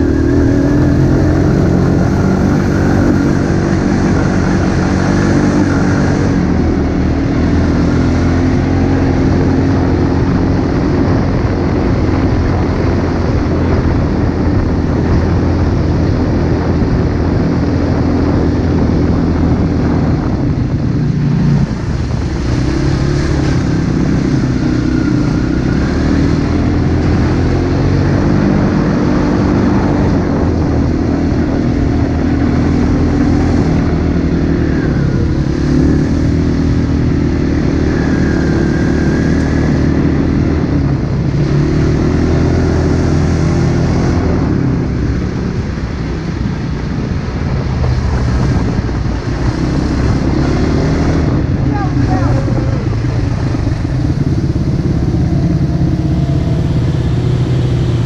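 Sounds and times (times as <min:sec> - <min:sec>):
dirt bike engine revving: 0:00.0 - 0:13.1, 0:48.0 - 0:58.0.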